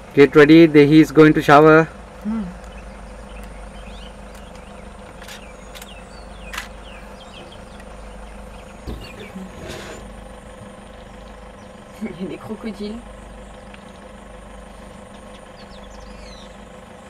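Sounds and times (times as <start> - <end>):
insects buzzing: 0.0 - 17.0
faint chirps: 2.2 - 12.3.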